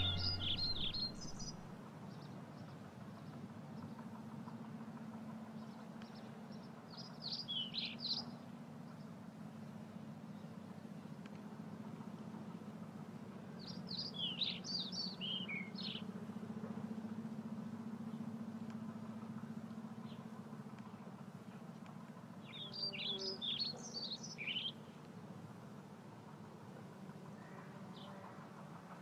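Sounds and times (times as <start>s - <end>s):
steady low hum: 0.0s - 1.8s
songbird singing: 0.0s - 2.7s, 5.6s - 11.4s, 13.5s - 16.1s, 20.0s - 25.1s.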